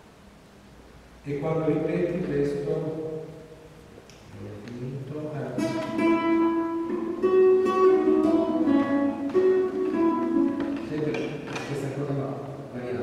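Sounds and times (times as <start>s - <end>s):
classical guitar plucked notes: 5.4s - 12.6s.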